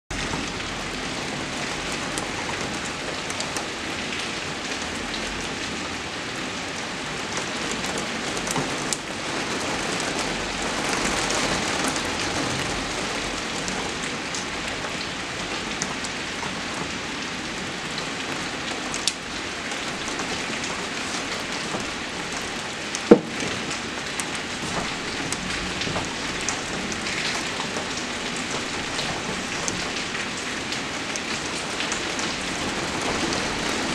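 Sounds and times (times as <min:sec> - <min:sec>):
heavy rain falling: 0:00.1 - 0:33.9.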